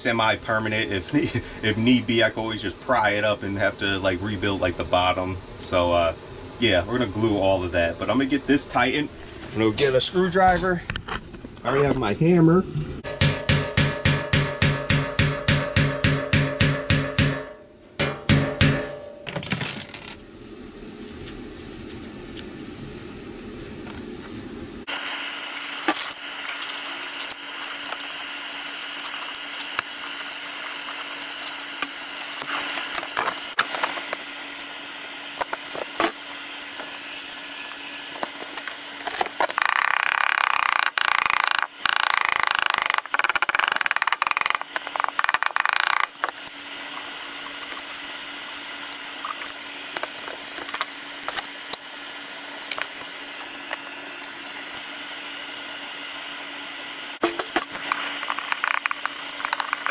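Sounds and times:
faint hum: 0.0s - 59.9s
loud harsh rasping noise: 39.0s - 46.6s.

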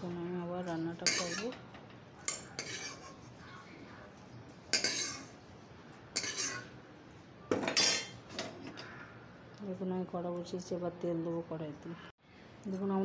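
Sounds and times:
metal cookware clattering: 1.0s - 3.2s, 4.7s - 5.4s, 6.2s - 6.8s, 7.5s - 8.9s.

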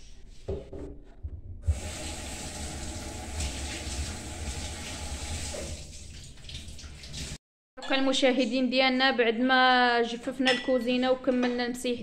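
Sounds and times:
water running from a tap: 1.7s - 7.4s.

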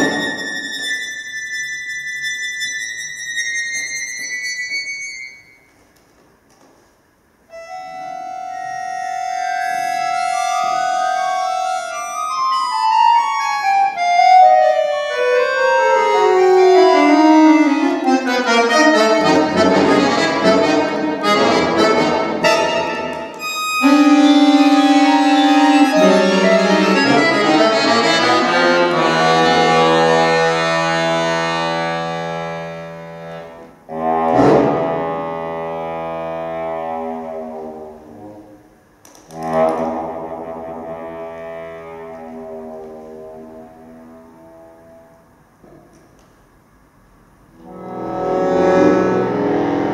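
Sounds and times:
solo accordion playing: 0.0s - 5.4s, 7.5s - 37.0s, 47.6s - 49.9s.

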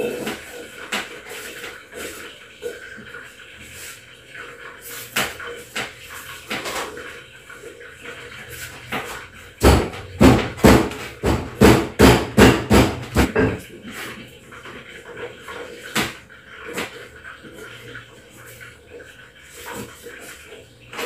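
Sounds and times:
knife chopping on cutting board: 9.6s - 13.6s.

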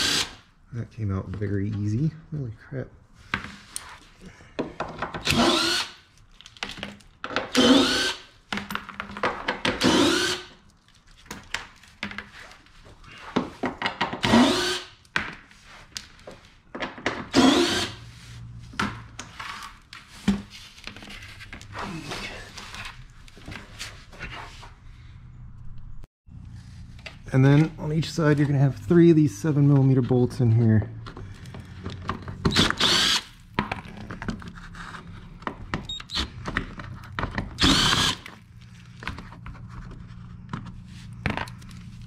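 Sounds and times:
cordless drill whirring: 0.0s - 0.4s, 5.2s - 6.0s, 7.5s - 8.3s, 9.8s - 10.5s, 14.3s - 14.9s, 17.3s - 18.0s, 32.5s - 33.3s, 37.6s - 38.3s.

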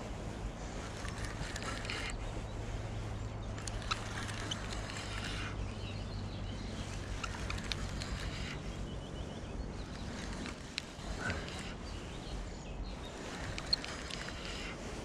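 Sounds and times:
rustling of fishing rod: 0.0s - 15.0s
steady low hum: 0.0s - 15.0s
bird chirps: 3.3s - 14.8s.

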